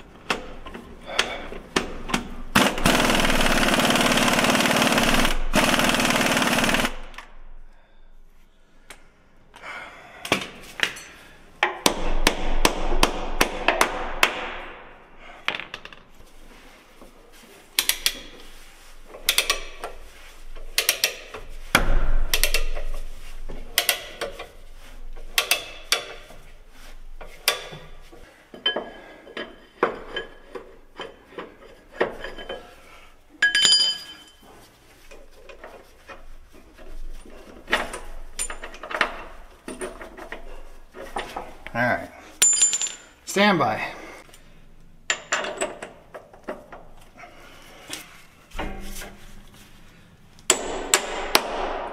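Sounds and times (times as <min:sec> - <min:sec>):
hammer striking steel: 0:50.5 - 0:51.9.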